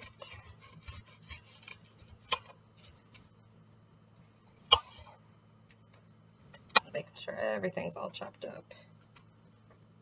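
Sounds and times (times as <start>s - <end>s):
knife cutting onion: 0.0s - 3.3s.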